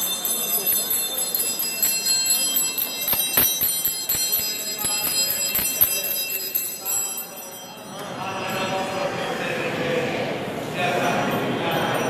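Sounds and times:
bells ringing rapidly: 0.0s - 9.4s.

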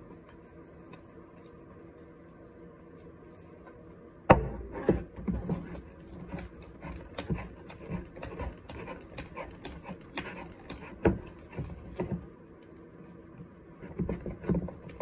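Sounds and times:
spoon stirring sticky slime: 5.3s - 12.2s.

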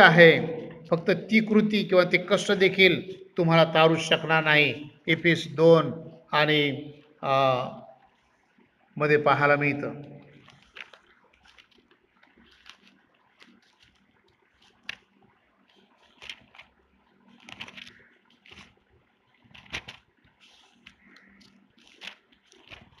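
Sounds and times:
pages being turned: 10.3s - 23.0s.

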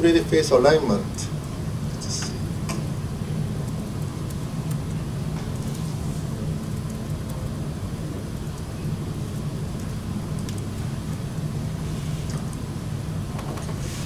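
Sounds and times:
low room hum: 0.0s - 14.0s
faint clicks: 9.8s - 10.6s.

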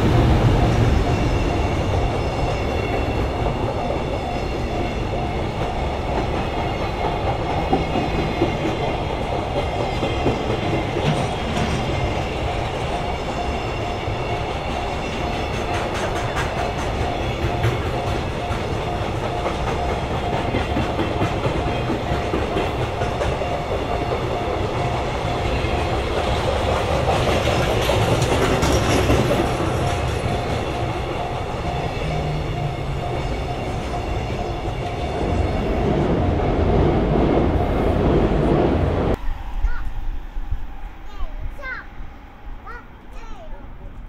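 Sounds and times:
train wagons clattering over rail joints: 0.0s - 13.2s, 14.2s - 36.4s
level crossing alarm ringing: 11.4s - 27.1s, 28.8s - 37.3s.

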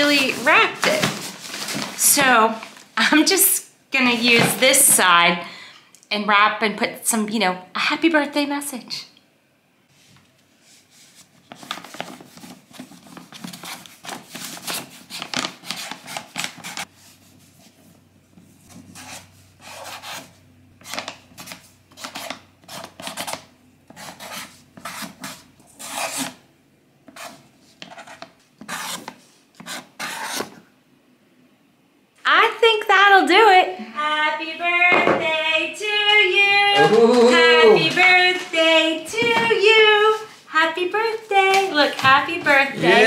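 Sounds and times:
marker scratching on paper: 18.7s - 20.3s, 20.9s - 26.3s, 27.1s - 30.6s.

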